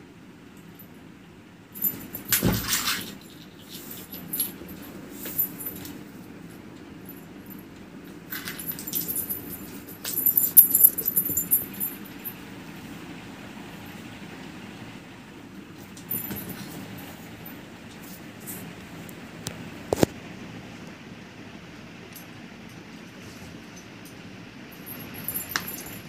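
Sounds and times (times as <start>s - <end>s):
low steady hum: 0.0s - 26.0s
jingling and scuffling kittens: 1.8s - 12.7s, 15.8s - 18.9s, 23.0s - 26.0s.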